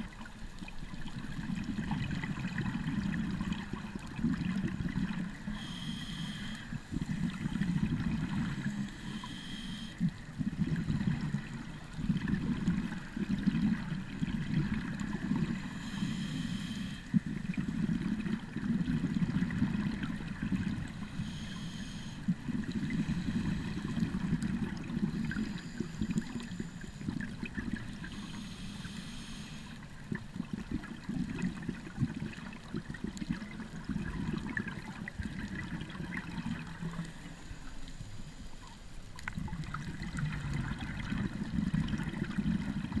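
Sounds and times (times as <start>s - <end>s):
exhaled bubbles underwater: 0.0s - 38.0s, 38.6s - 43.0s
diver breathing through regulator: 5.5s - 7.6s, 8.3s - 11.7s, 15.2s - 17.4s, 20.9s - 27.3s, 27.9s - 29.9s.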